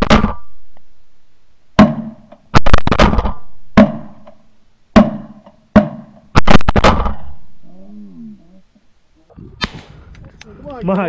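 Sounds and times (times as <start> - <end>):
shotgun shots: 0.0 - 0.5, 1.8 - 4.3, 5.0 - 7.4.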